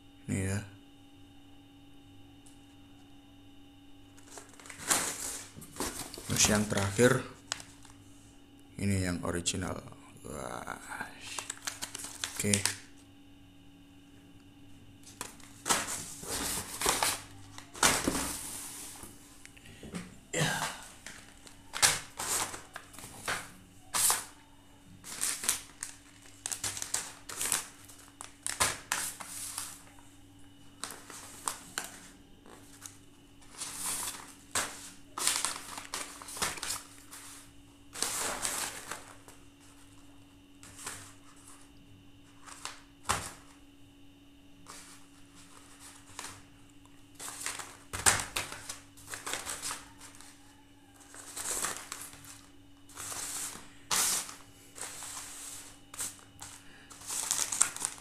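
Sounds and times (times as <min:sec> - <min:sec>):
plastic pouches crinkling: 0:04.2 - 0:08.0, 0:11.2 - 0:13.0, 0:15.0 - 0:30.0, 0:30.6 - 0:40.0, 0:44.7 - 0:58.0.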